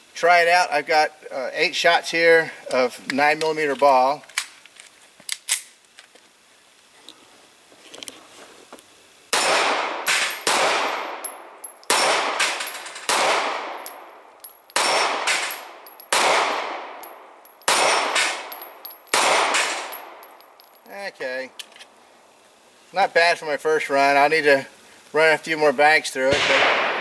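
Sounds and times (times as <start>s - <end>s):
pistol shots: 9.3s - 14.2s, 14.8s - 20.2s, 26.3s - 27.0s.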